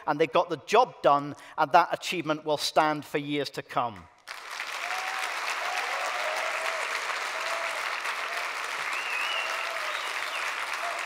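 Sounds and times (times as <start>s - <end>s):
person giving a speech: 0.0s - 4.1s
audience applauding: 4.3s - 11.0s.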